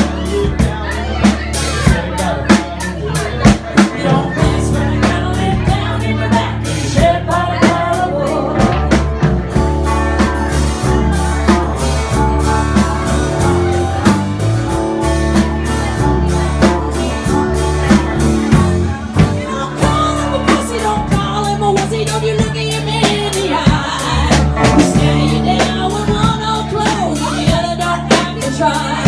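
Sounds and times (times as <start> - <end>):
woman singing: 0.0 - 14.2, 15.6 - 29.0
blues-rock band playing: 0.0 - 29.0.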